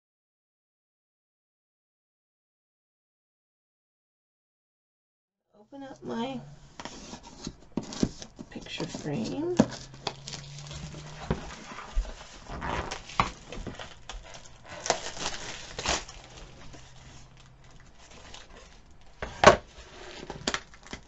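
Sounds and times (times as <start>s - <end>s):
picture frame clicks and rustles: 6.8s - 21.0s.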